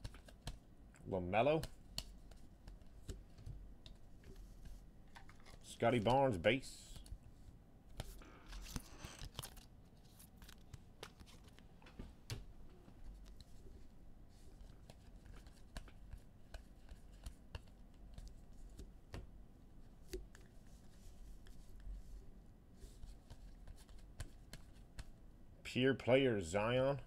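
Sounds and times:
trading cards clicking and rustling: 1.5s - 7.2s, 7.9s - 11.7s, 14.5s - 18.9s.

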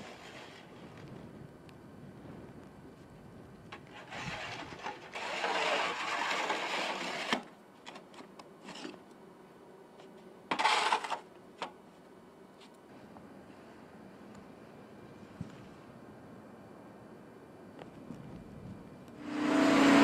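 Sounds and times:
snow shovel scraping sidewalk: 0.0s - 0.9s, 3.9s - 7.5s, 10.5s - 11.2s.

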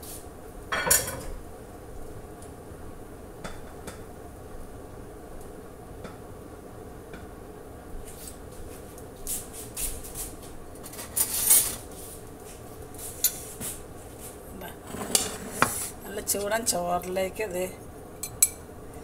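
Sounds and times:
steady hum: 0.0s - 19.0s
dishes clattering and scraping: 0.7s - 1.4s, 10.8s - 11.9s, 14.7s - 16.0s, 18.2s - 18.6s.

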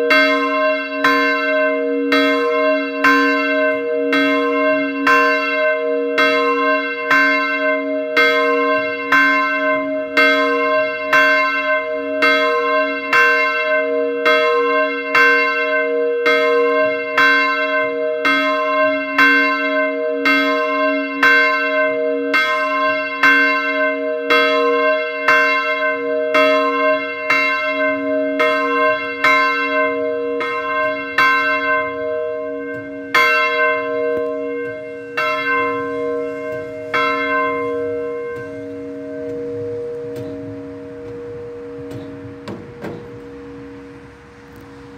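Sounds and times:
church bell tolling: 0.0s - 44.9s.

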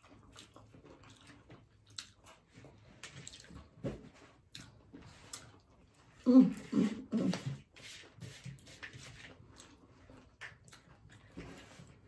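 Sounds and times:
wet chewing and lip smacks: 0.0s - 6.2s, 8.8s - 11.9s.

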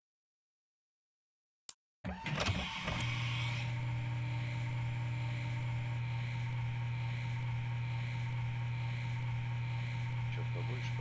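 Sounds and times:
synthesized machine spindle hum: 2.7s - 11.0s.

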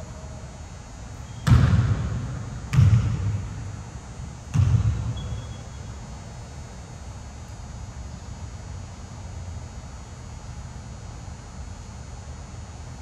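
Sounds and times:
basketball bouncing on hardwood floor: 1.2s - 3.6s, 4.5s - 5.5s.

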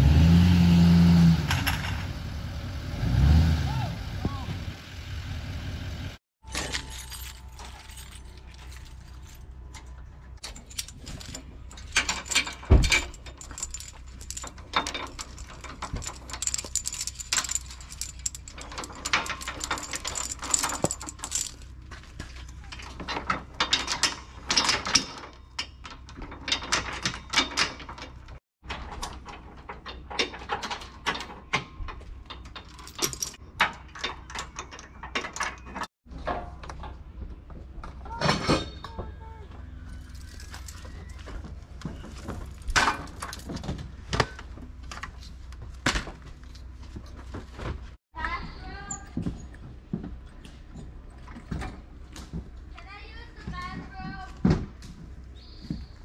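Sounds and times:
metal chains clinking and rattling: 6.4s - 35.9s, 39.8s - 45.3s
metal clunk: 10.4s - 21.7s.

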